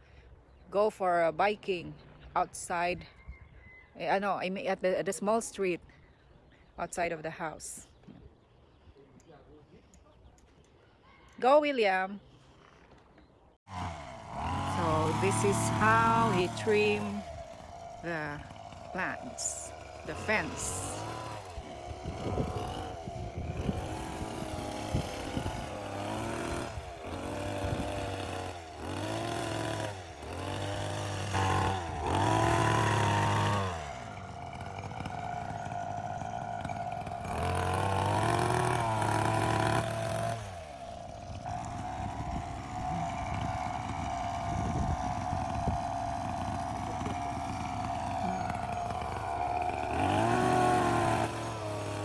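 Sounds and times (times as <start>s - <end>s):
hedge trimmer engine revving: 13.7s - 52.0s.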